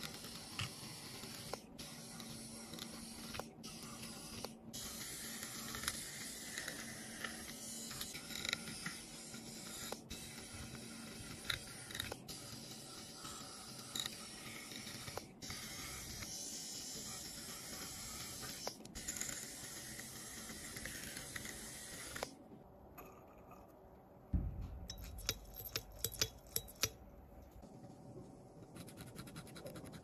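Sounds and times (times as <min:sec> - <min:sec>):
low knock: 0:24.4 - 0:25.5.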